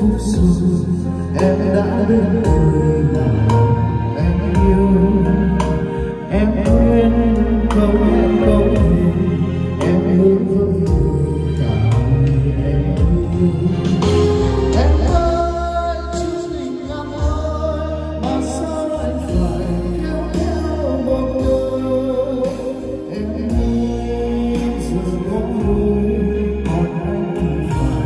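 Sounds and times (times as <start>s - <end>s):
karaoke backing track: 0.0s - 28.0s
man singing into a microphone: 0.0s - 28.0s.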